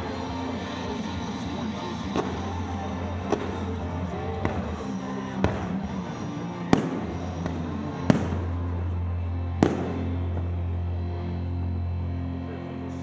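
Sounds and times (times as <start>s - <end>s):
music: 0.0s - 13.0s
fireworks bangs: 1.6s - 8.8s, 9.6s - 10.6s.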